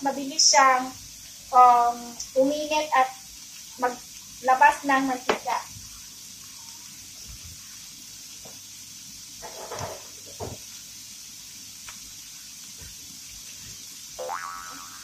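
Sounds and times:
meat sizzling in a pan: 0.0s - 15.0s.

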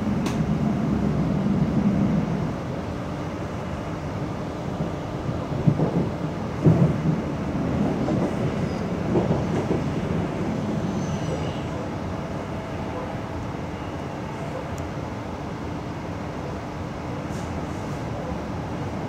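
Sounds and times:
train rumbling on rails: 0.0s - 19.0s
faint high wheel squeal: 8.6s - 9.0s, 10.8s - 11.8s.

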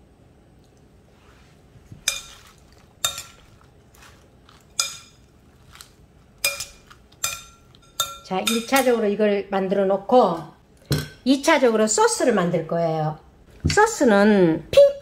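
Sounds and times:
salad leaves rustling: 1.2s - 7.2s
utensils clinking on glass bowl: 2.0s - 5.8s, 6.4s - 9.0s.

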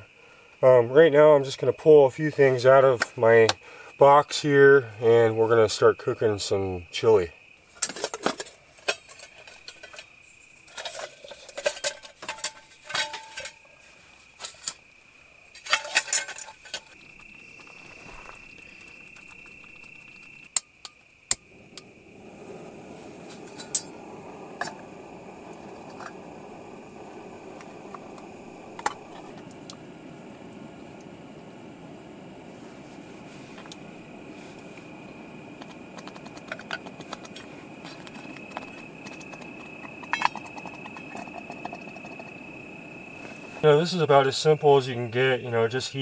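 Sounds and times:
insect trill: 0.0s - 46.0s
gas stove burner hissing: 8.8s - 46.0s
metal pot and lid clinking: 10.7s - 13.6s, 15.6s - 16.9s, 23.4s - 24.0s, 39.8s - 42.0s.

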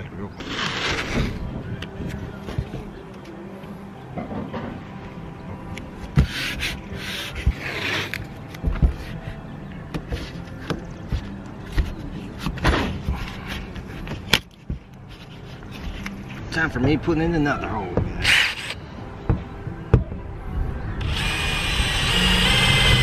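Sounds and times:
tape tearing off roll: 0.4s - 1.4s.

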